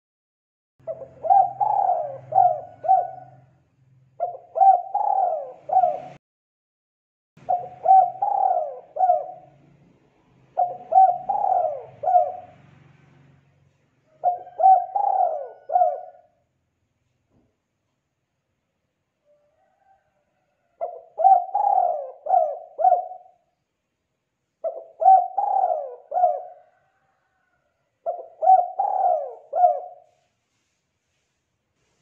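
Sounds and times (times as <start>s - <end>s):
dove cooing: 0.8s - 3.6s, 4.2s - 6.2s, 7.4s - 9.6s, 10.5s - 12.6s, 14.1s - 16.4s, 20.7s - 23.5s, 24.6s - 30.2s.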